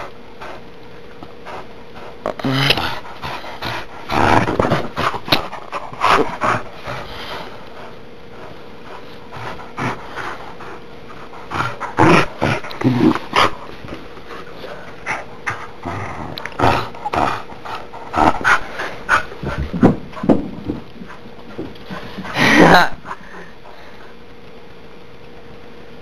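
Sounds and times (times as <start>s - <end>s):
dog growling: 1.5s - 19.8s.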